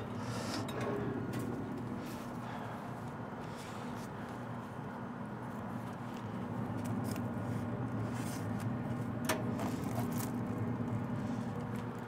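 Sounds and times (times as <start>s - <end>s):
steady low hum: 0.0s - 12.0s
foil scrapes and rustles: 5.9s - 10.6s.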